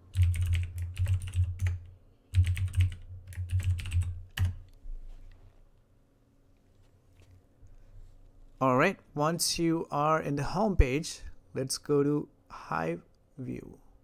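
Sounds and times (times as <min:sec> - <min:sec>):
typing on computer keyboard: 0:00.1 - 0:04.7.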